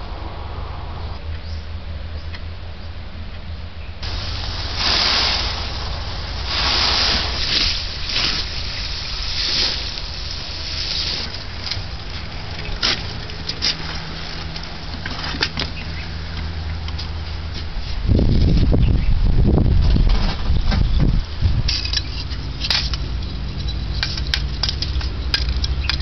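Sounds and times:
gravel pouring: 4.0s - 15.6s.

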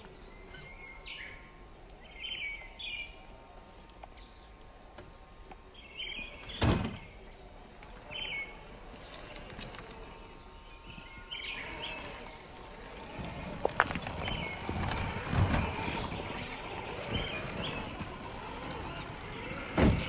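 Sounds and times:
electric drivetrain whir: 0.0s - 20.0s
songbirds chirping: 0.0s - 20.0s
tyres grinding on stone: 8.7s - 20.0s.

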